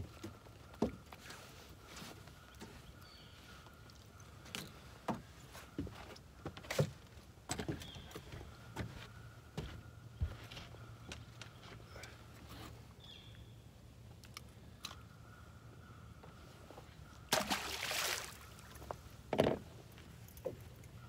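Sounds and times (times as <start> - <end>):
water splashing and sloshing: 17.2 - 19.6.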